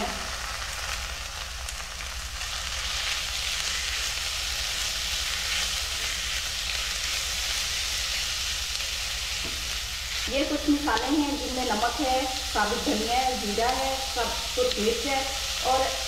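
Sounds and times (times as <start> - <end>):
meat sizzling in hot oil: 0.0 - 16.0.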